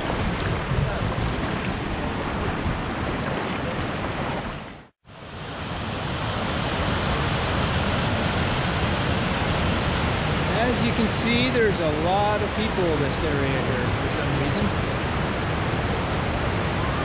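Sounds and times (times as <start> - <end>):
river rushing over rocks: 0.0 - 17.0
white-water rapids rushing: 0.0 - 17.0
wind rumble on microphone: 0.0 - 17.0.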